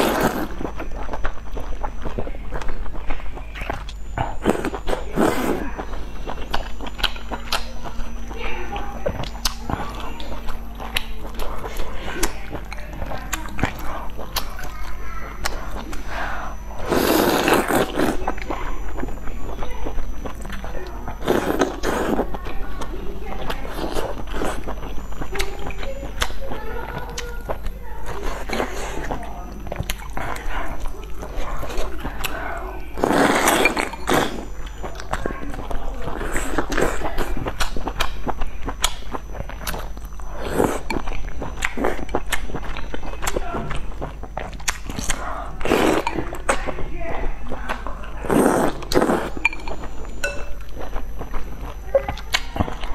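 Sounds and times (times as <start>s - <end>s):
loud slurp: 0.0s - 0.6s, 15.5s - 18.2s, 33.0s - 34.4s, 48.2s - 49.4s
wet chewing: 0.0s - 52.9s
breathy slurp: 15.5s - 18.2s.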